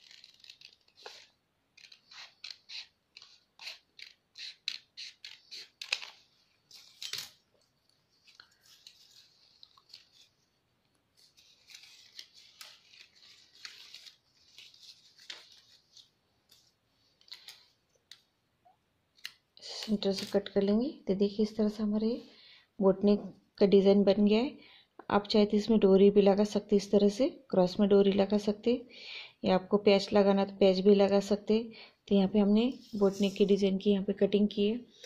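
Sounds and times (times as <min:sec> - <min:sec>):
scissors snipping paper: 0:00.0 - 0:06.2, 0:11.2 - 0:15.8.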